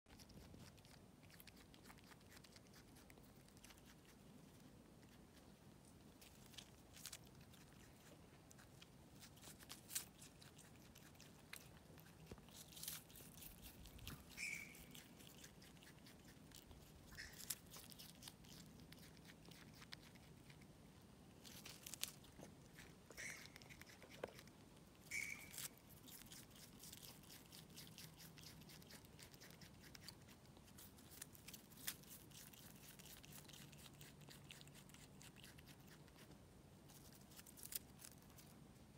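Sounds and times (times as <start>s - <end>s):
possum chewing clicks: 0.1s - 5.5s, 6.2s - 20.7s, 21.5s - 38.2s
short high chirps: 14.4s - 14.9s, 25.1s - 25.8s.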